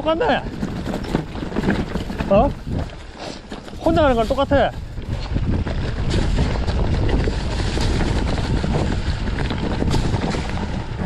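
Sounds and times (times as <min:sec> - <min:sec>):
mountain bike rattling on rocks: 0:00.0 - 0:11.0
wind buffeting the microphone: 0:00.0 - 0:11.0.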